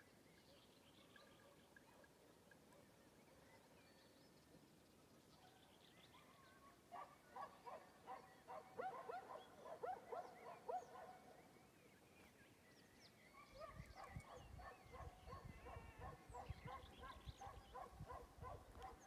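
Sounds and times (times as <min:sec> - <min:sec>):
distant dog barking: 0:06.9 - 0:11.4, 0:13.4 - 0:19.0.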